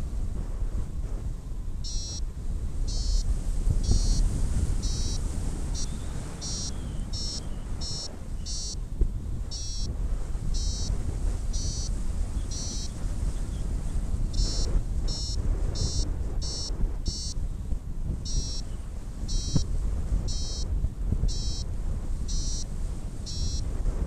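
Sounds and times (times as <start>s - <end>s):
wind on microphone: 0.0s - 24.0s
variometer short high beeps: 1.8s - 2.3s, 2.9s - 8.8s, 9.5s - 9.9s, 10.5s - 13.0s, 14.3s - 17.4s, 18.2s - 18.7s, 19.3s - 20.7s, 21.3s - 21.7s, 22.3s - 22.7s, 23.3s - 23.7s.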